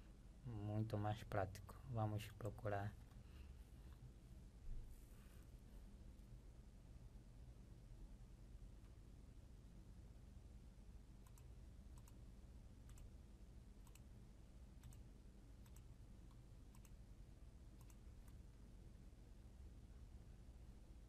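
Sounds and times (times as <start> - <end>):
low steady hum: 0.0 - 21.0
computer mouse clicks: 11.2 - 12.2, 12.8 - 13.1, 13.8 - 14.1, 14.8 - 17.0, 17.8 - 18.4.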